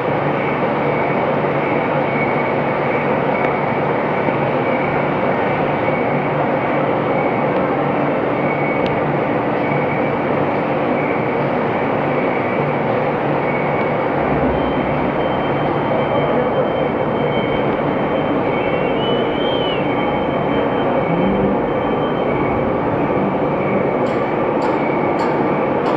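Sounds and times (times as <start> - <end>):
thin high whine: 13.0 - 25.0
boring mill mechanical din: 13.2 - 25.9.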